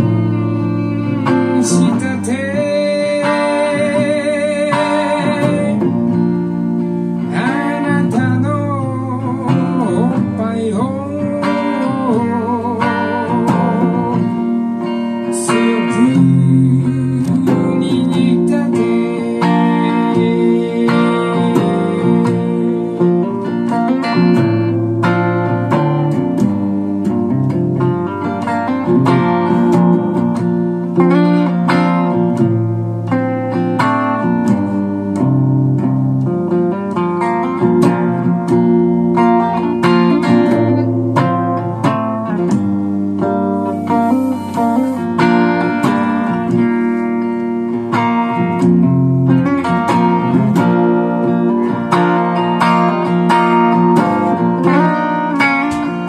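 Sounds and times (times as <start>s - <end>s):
man singing: 0.0s - 6.5s, 7.2s - 24.8s
electric guitar: 0.0s - 56.0s.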